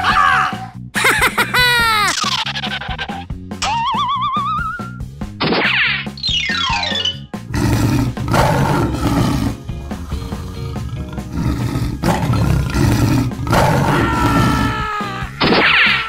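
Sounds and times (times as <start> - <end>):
background music: 0.0 - 16.0
tiger roaring: 7.5 - 14.9.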